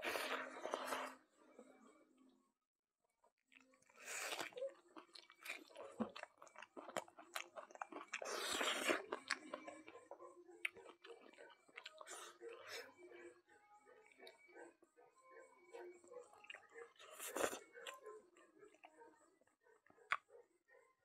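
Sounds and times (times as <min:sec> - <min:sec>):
wet chewing and lip smacking: 0:03.5 - 0:12.9, 0:16.2 - 0:18.0.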